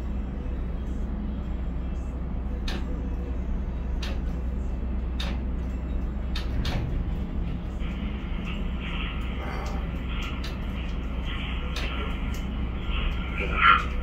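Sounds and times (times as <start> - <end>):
crane machinery rumble: 0.0 - 14.0
sharp clicks and knocks: 2.6 - 2.9, 4.0 - 4.4, 5.2 - 5.4, 6.3 - 12.5.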